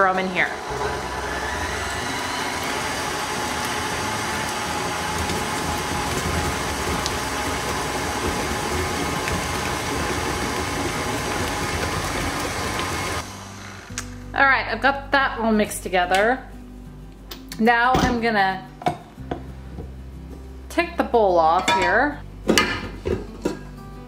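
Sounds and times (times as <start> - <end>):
beater churning batter: 0.2 - 13.3
stand mixer motor humming: 0.5 - 13.9.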